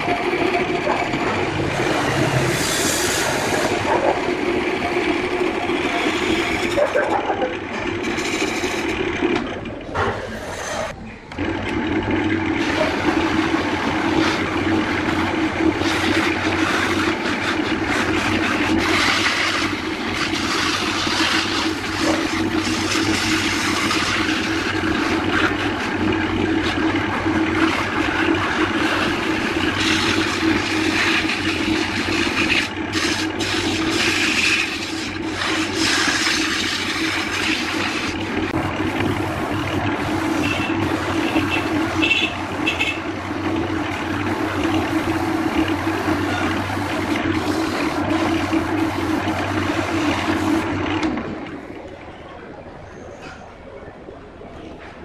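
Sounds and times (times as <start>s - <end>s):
turning tool scraping wood: 0.0s - 51.2s
lathe motor hum: 0.0s - 51.9s
sanding hiss on a lathe: 1.8s - 3.9s, 15.8s - 25.8s, 28.7s - 42.3s, 43.9s - 50.7s.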